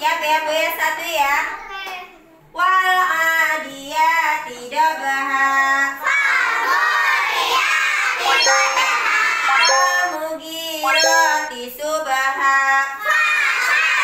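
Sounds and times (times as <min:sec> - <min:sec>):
children chanting together: 0:06.0 - 0:09.6, 0:13.0 - 0:14.0.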